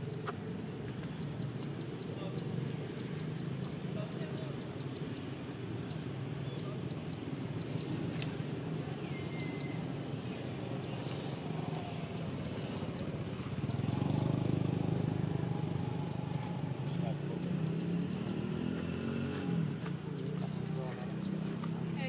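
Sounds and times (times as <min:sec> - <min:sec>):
low engine rumble: 0:09.9 - 0:22.0.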